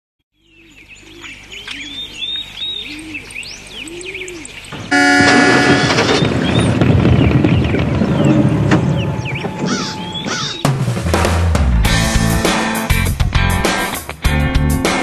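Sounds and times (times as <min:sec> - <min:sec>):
birds chirping: 0:00.3 - 0:10.8
dove cooing: 0:00.6 - 0:05.6, 0:09.6 - 0:10.7
loud sound: 0:04.9 - 0:12.2.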